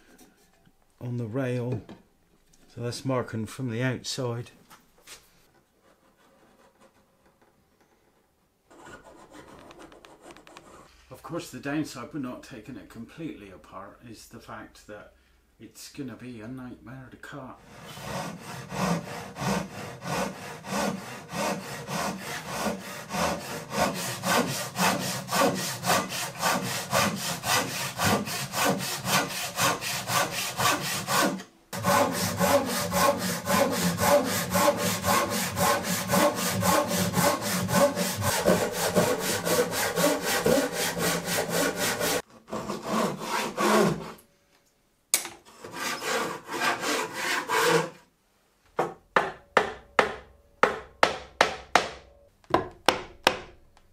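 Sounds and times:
hand saw cutting wood: 17.6 - 44.2, 45.5 - 48.0.

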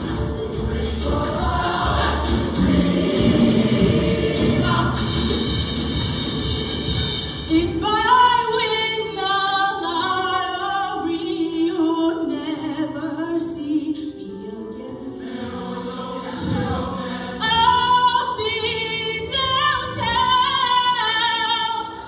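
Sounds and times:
choir singing: 0.0 - 6.0, 14.9 - 18.6
bass-heavy accompaniment: 0.0 - 8.3
woman singing into microphone: 17.4 - 22.0.

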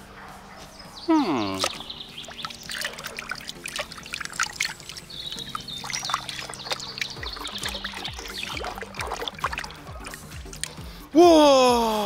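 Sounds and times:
water sloshing in plastic basin: 1.6 - 10.8.

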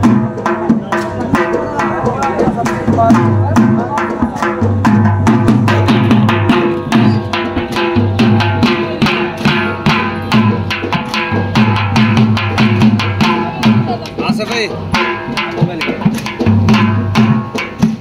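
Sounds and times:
drum beaten in fast rhythm: 0.0 - 18.0.

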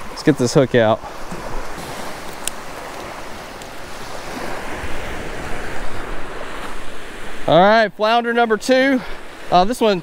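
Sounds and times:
surf waves washing on sand: 0.0 - 10.0.

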